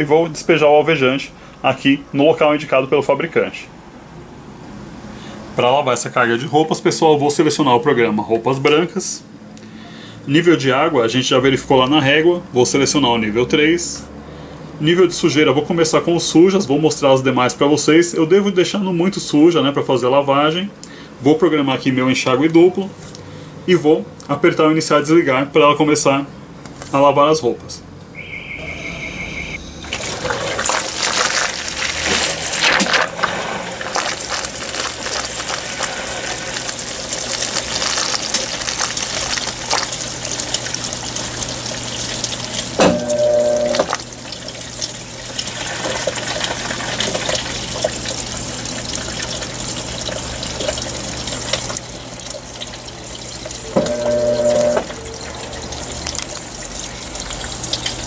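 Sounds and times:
short electronic beep: 28.1 - 30.0, 42.8 - 43.9, 53.6 - 55.1
washing machine low hum: 29.6 - 58.0
water spraying into tub: 29.8 - 58.0.

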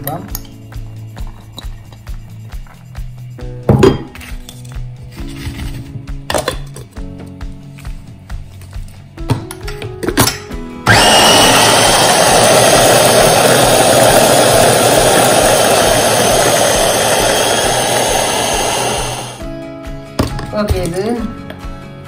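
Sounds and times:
electric food chopper grinding: 10.8 - 19.4.

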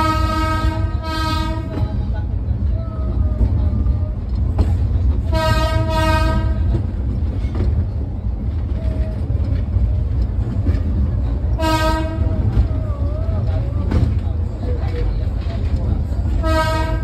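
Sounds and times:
locomotive horn blasts: 0.0 - 1.8, 5.3 - 6.8, 11.6 - 12.4, 16.4 - 17.0
train running with low rumble: 0.0 - 17.0.

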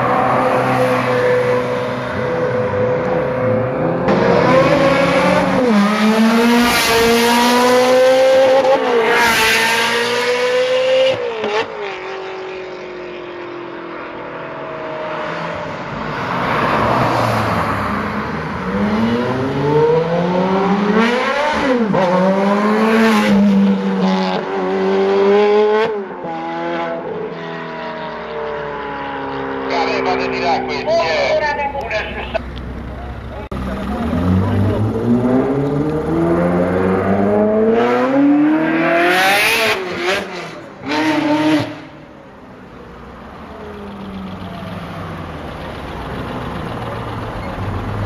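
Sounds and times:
sports car engines revving: 0.0 - 48.0
tyre and road noise: 0.0 - 48.0.

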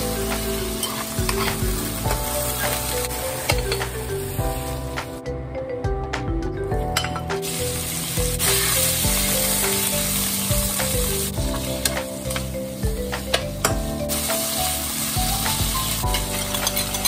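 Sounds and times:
light background music: 0.0 - 17.0
meat sizzling in oil: 7.4 - 13.2, 14.0 - 17.0.

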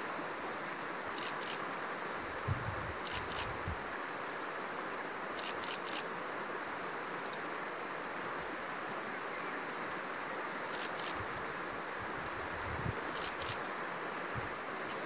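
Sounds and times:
river rushing over stones: 0.0 - 15.0.

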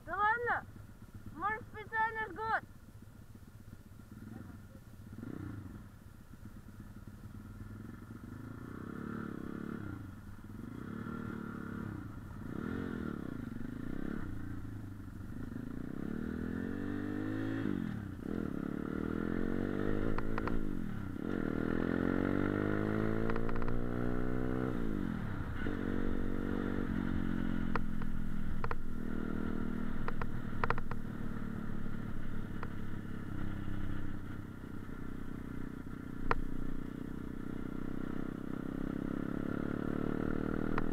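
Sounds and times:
motorcycle engine accelerating: 0.0 - 40.9
sharp clicks: 20.1 - 20.6, 23.2 - 23.8, 30.0 - 31.0, 36.2 - 36.5.

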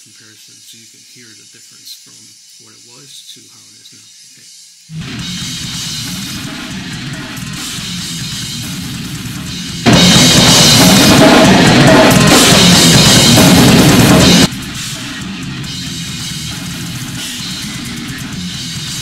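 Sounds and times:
drum kit: 4.9 - 19.0
electric guitar: 4.9 - 19.0.

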